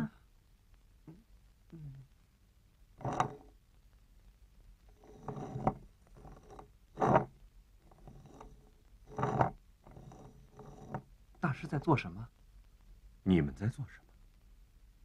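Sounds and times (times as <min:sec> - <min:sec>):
clay tile scraping on tabletop: 0:03.0 - 0:03.5, 0:04.9 - 0:11.1.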